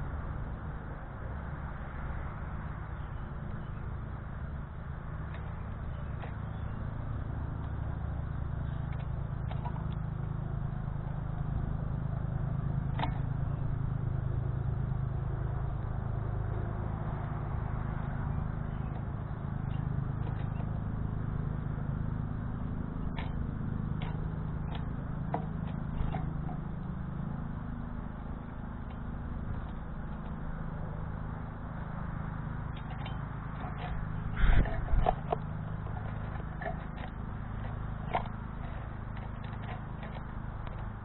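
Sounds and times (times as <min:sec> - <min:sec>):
low outdoor rumble: 0:00.0 - 0:41.0
birds pecking on metal tray: 0:32.2 - 0:41.0.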